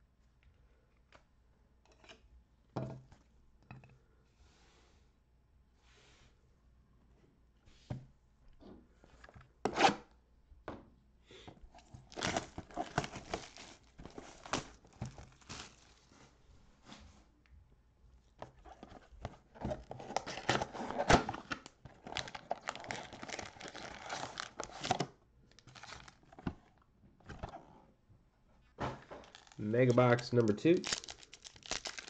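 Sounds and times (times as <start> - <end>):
cardboard box opened: 11.7 - 16.0, 18.6 - 27.7, 29.2 - 29.6
plastic wrap tearing and crinkling: 11.9 - 16.0, 19.9 - 26.4, 29.2 - 32.0.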